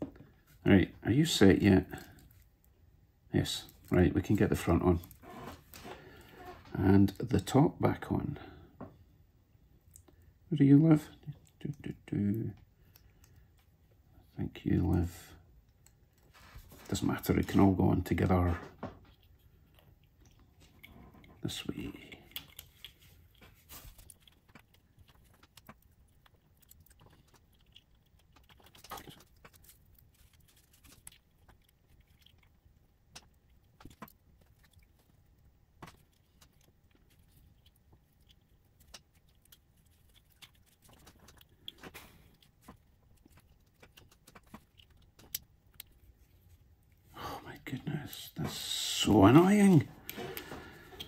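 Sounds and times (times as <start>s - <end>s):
small parts clicking and tapping: 18.8s - 47.0s.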